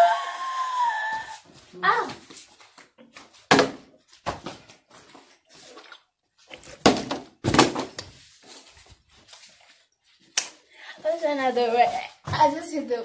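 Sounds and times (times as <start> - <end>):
plastic bottle thunking on wood: 3.5 - 4.5, 6.8 - 8.1.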